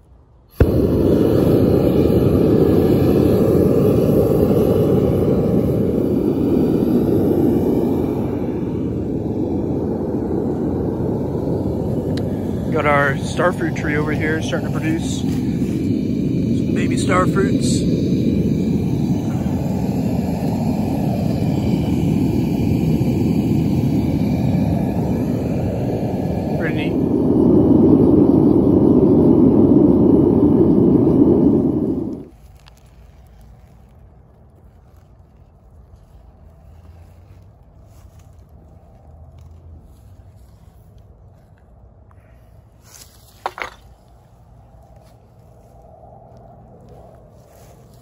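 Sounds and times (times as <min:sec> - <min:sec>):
steady rush of flame: 0:00.0 - 0:48.0
burner lighting pop: 0:00.5 - 0:06.3.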